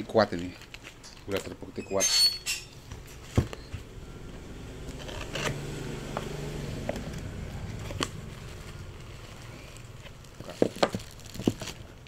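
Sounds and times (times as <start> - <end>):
low steady hum: 0.0 - 12.0
cardboard flaps scraping: 4.9 - 12.0.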